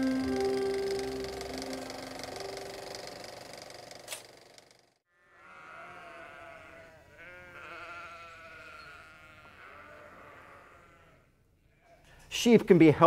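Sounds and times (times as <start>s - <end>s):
lamb bleating: 5.2s - 11.3s.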